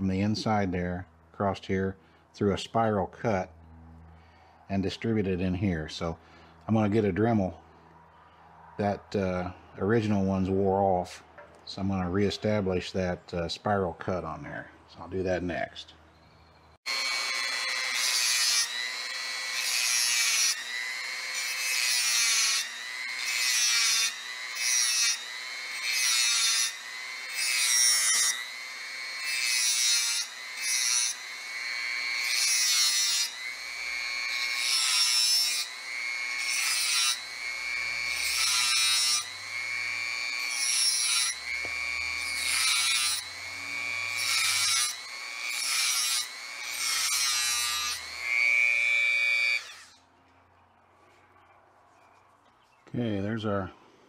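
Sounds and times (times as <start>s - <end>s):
bit grinding metal: 16.9s - 50.0s
rotary tool whining: 16.9s - 50.0s.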